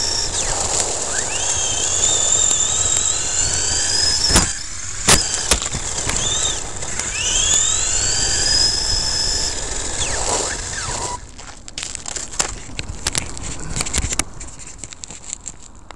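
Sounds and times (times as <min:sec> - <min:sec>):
electric motor whine: 0:00.0 - 0:11.5
tyres on gravel: 0:00.0 - 0:15.9
sharp knocks: 0:04.2 - 0:06.3.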